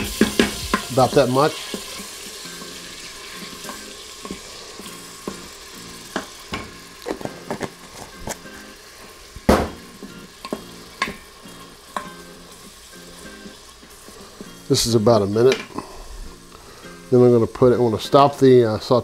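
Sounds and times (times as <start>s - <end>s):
garlic sizzling in butter: 0.0s - 19.0s
wooden spoon knocking against pot: 9.5s - 9.8s.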